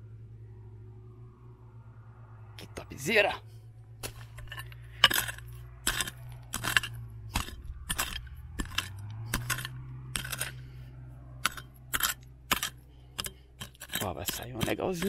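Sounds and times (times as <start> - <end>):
metal tool striking stony ground: 4.0 - 10.7, 11.4 - 15.0.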